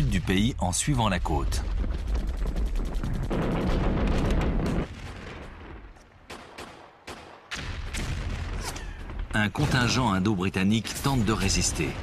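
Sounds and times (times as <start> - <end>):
single gunshots: 6.3 - 8.8.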